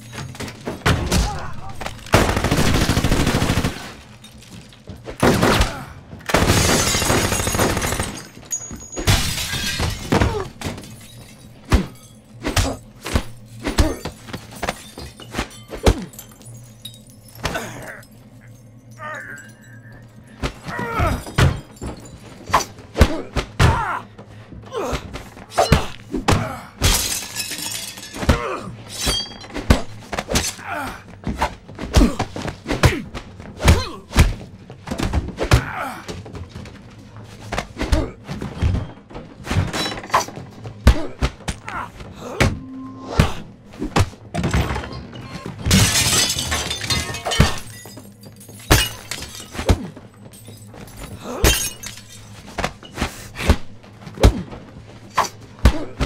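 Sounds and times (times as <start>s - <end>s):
punches and body impacts: 22.6s - 24.0s, 52.6s - 54.6s, 55.2s - 56.0s.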